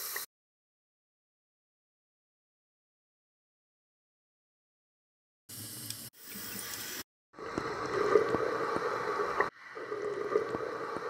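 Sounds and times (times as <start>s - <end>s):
water: 5.7s - 11.0s.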